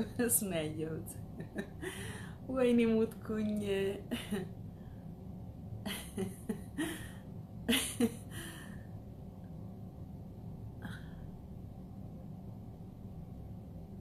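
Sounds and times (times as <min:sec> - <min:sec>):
woman laughing: 0:01.3 - 0:02.2, 0:04.1 - 0:04.4, 0:05.9 - 0:08.7
short breath: 0:01.9 - 0:02.4.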